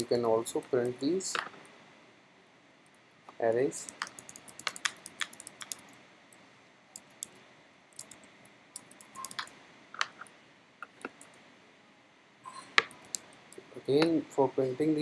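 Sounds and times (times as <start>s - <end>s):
keyboard typing: 3.8s - 6.0s, 8.0s - 10.1s.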